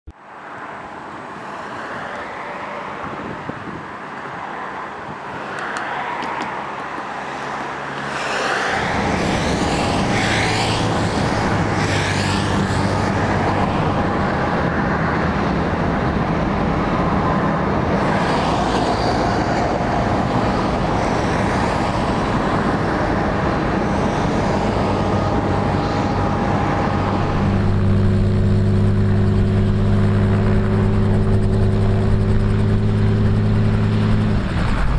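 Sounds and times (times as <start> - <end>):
aircraft engines whining: 4.9 - 34.9
deep hum: 23.3 - 34.9.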